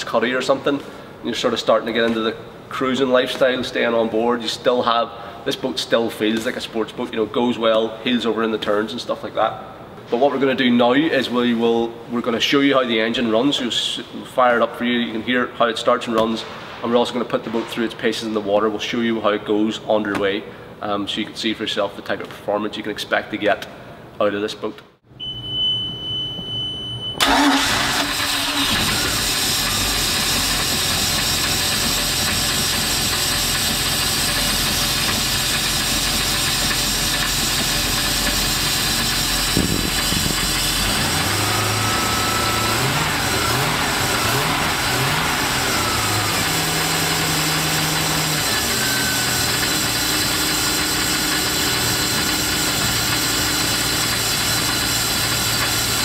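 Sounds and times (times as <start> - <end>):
boat engine starting and idling: 27.2 - 56.0.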